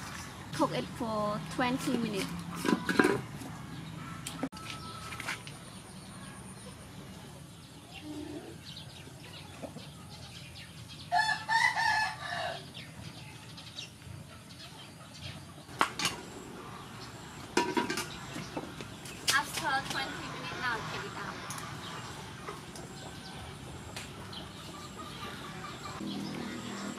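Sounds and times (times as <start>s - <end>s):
rooster crowing: 11.1s - 12.7s.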